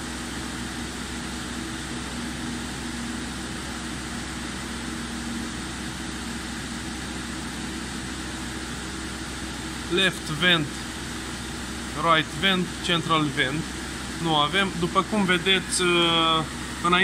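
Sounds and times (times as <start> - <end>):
car blower fan rushing air: 0.0 - 17.0
engine idling hum: 0.0 - 17.0.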